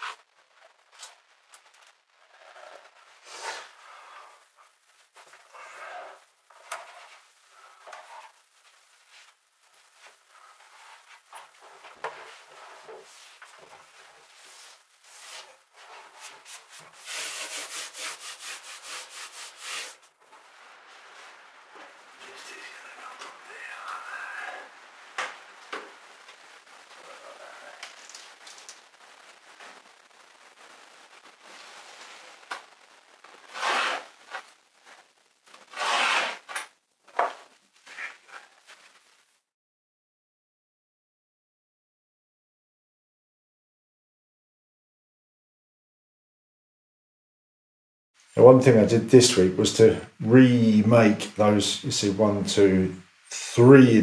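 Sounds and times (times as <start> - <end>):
hands rubbing foam mats: 5.0 - 20.1, 33.4 - 39.1
scraping and rustling: 31.0 - 39.3
knife slicing foam: 33.6 - 34.1, 35.8 - 36.5.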